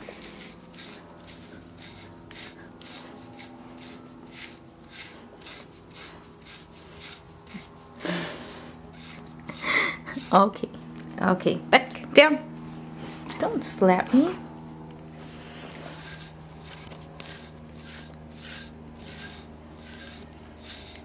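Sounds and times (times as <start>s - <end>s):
brush raking through dog fur: 0.0s - 10.7s, 15.2s - 21.0s.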